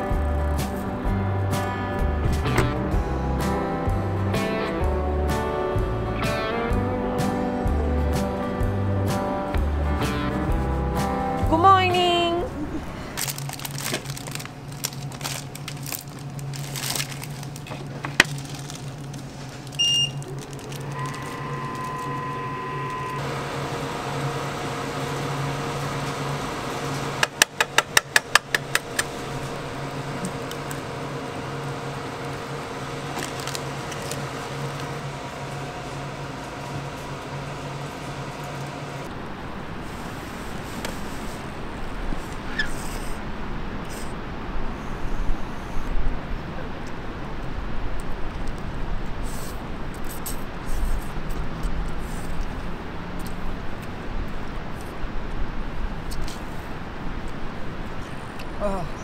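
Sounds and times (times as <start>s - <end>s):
steady electrical hum: 0.0s - 59.0s
electronic beeps: 19.8s - 20.3s.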